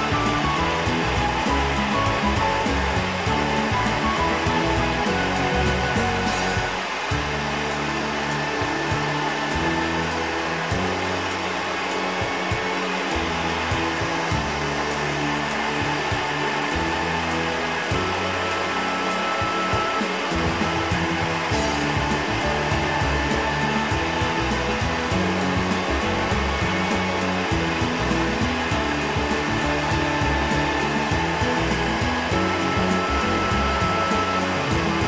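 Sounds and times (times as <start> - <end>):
gas burner hissing: 0.0 - 35.0.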